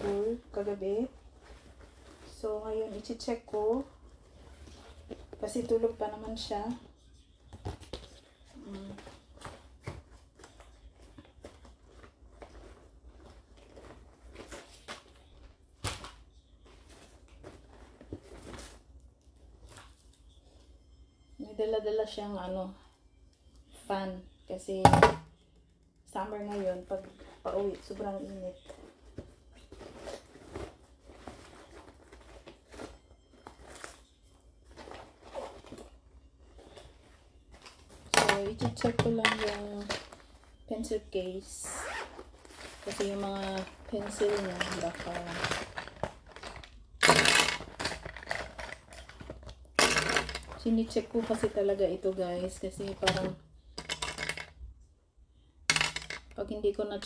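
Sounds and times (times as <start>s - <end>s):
rustling in fabric backpack: 41.6s - 45.9s.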